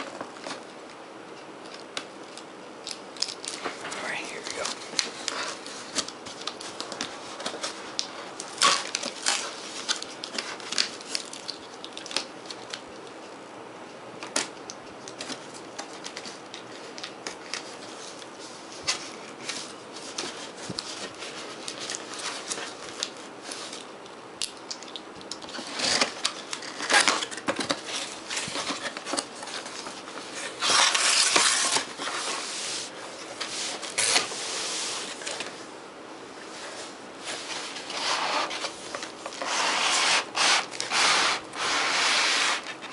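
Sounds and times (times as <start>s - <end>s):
cardboard flaps and packaging rustling: 3.2s - 12.6s, 25.5s - 35.7s, 36.5s - 42.9s
packing tape peeling: 24.7s - 32.4s, 37.8s - 42.7s.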